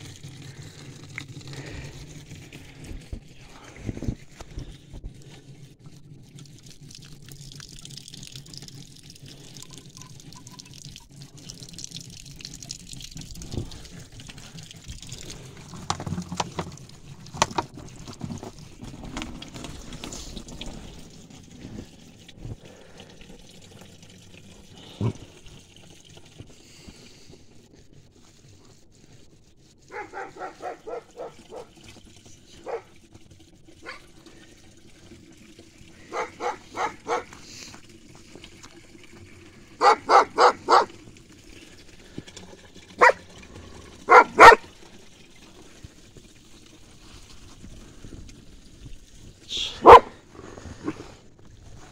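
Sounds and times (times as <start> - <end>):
water trickling into plastic bottle: 0.0 - 51.9
dog barking: 29.9 - 31.7, 32.6 - 32.9, 36.1 - 37.3, 39.8 - 40.9, 43.0 - 43.2, 44.1 - 44.6, 49.8 - 50.1.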